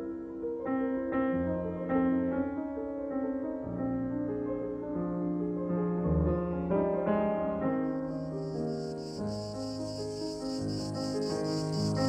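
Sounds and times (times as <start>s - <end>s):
slow piano melody: 0.0s - 12.0s
steady high-pitched hiss: 7.6s - 12.0s.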